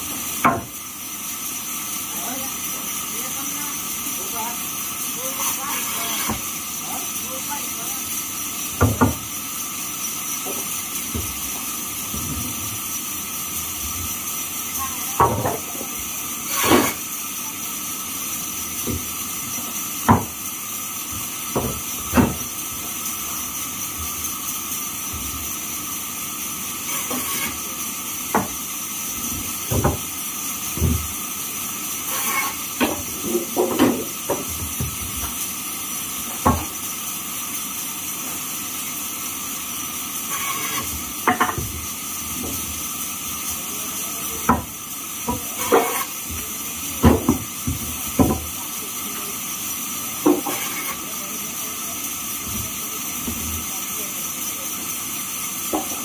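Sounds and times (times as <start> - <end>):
band saw hissing: 0.0 - 56.0
wooden boards knocking: 8.8 - 9.2, 20.1 - 20.3, 21.5 - 22.5, 29.3 - 30.0.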